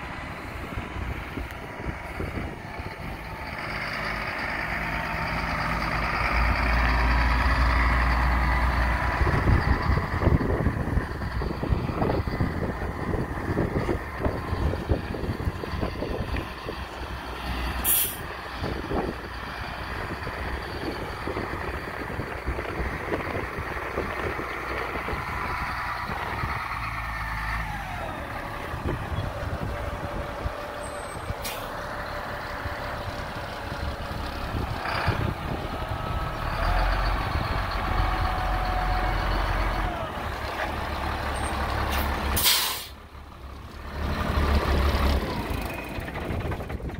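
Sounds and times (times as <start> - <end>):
truck diesel engine running: 0.0 - 46.9
air brake hisses: 17.8 - 18.3, 41.9 - 43.0.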